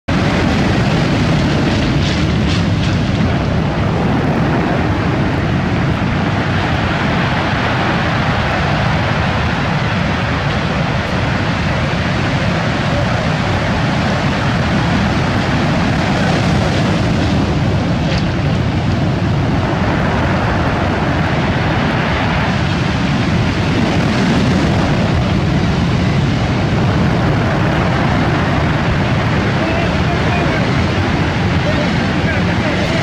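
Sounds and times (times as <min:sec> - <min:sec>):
surf breaking on pebble beach: 0:00.1 - 0:33.0.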